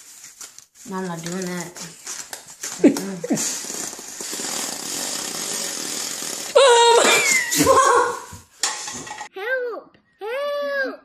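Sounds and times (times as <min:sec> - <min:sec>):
paper towel rubbing against wall: 0:00.0 - 0:06.6
child laughing: 0:06.5 - 0:08.4
boy screaming: 0:06.6 - 0:08.3.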